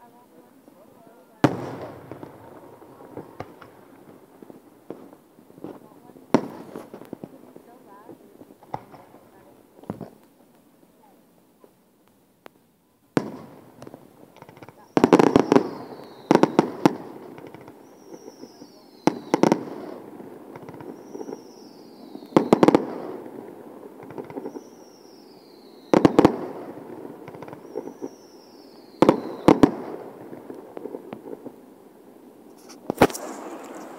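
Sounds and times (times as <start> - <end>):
fireworks crackling: 0.0 - 33.9
fireworks booming: 0.1 - 10.2, 13.1 - 33.9
falling whistle of fireworks: 14.8 - 20.0, 20.6 - 23.3, 24.1 - 30.1, 32.5 - 33.9.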